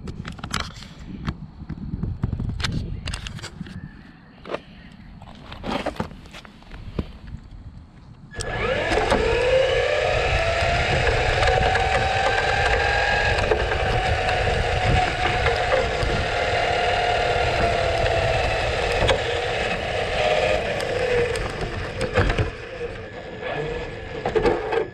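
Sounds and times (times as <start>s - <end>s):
tyre and road rumble: 0.0s - 24.9s
electric motor whining: 8.3s - 24.9s.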